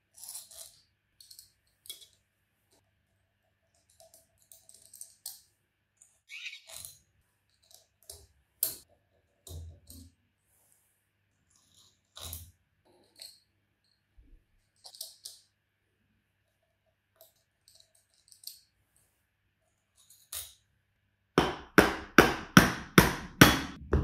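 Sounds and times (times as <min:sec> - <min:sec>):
mallet knocking on metal housing: 0:21.4 - 0:24.0.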